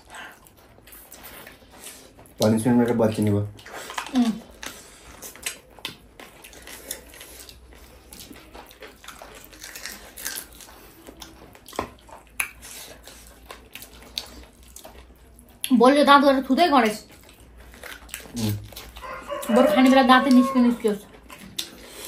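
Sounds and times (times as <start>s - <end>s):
chewing with wet mouth clicks: 3.5s - 15.8s, 16.7s - 22.0s.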